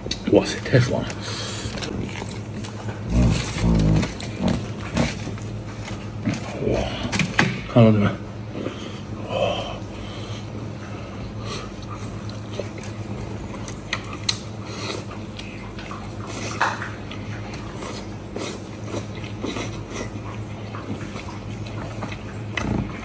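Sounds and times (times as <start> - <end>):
steady low hum: 0.0 - 23.0
man biting and chewing meat: 0.9 - 7.2, 8.4 - 23.0
wet smacks and clicks: 13.6 - 14.5.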